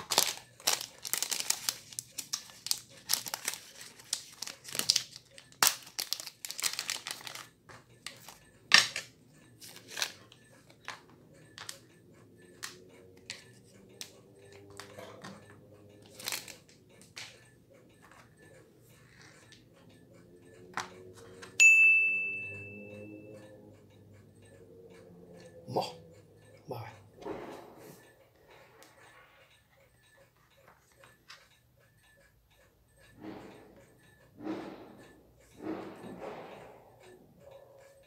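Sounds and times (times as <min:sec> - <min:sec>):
plastic packaging crinkling: 0:00.0 - 0:07.5, 0:16.1 - 0:16.6.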